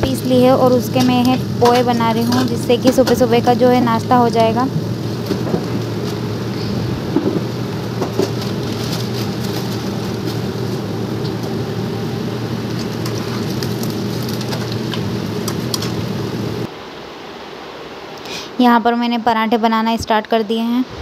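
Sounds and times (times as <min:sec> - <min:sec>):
gas burner hum: 0:00.0 - 0:16.7
oil sizzling and popping: 0:00.2 - 0:16.7.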